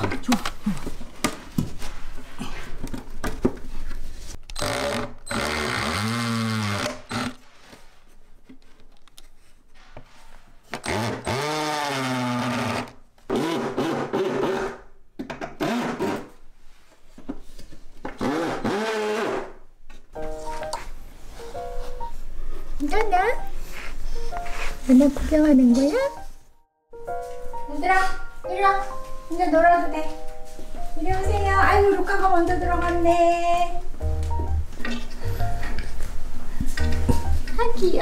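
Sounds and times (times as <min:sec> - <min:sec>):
cordless drill driving screws: 0:04.6 - 0:07.4, 0:10.8 - 0:14.7.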